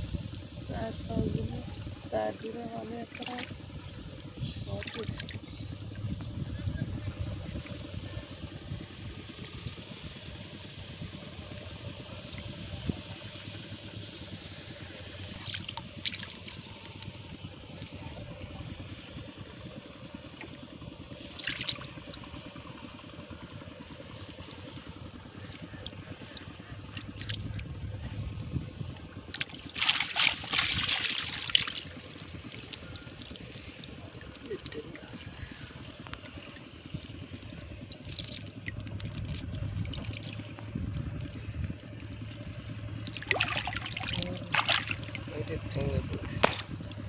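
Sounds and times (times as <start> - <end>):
steady low rumble: 0.0 - 47.0
shallow water trickling and sloshing: 0.2 - 6.0, 7.1 - 47.0
water splashing: 2.9 - 3.6, 4.6 - 5.7, 15.2 - 17.0, 21.2 - 22.3, 25.4 - 27.7, 29.3 - 35.2, 37.9 - 40.6, 43.0 - 45.8.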